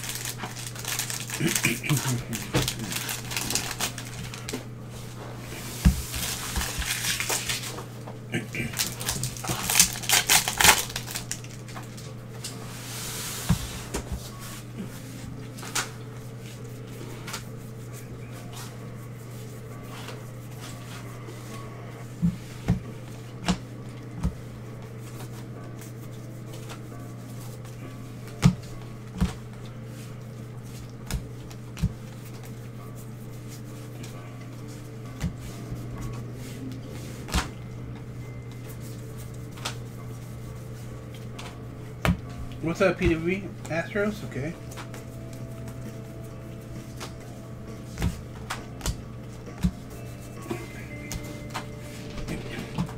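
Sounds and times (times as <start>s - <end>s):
wrapper tearing and crinkling: 0.0s - 4.6s, 6.2s - 7.8s, 8.5s - 12.0s
cards flipped through: 0.0s - 4.7s, 6.1s - 7.9s, 8.8s - 12.6s, 47.9s - 49.7s
steady low hum: 0.0s - 52.9s.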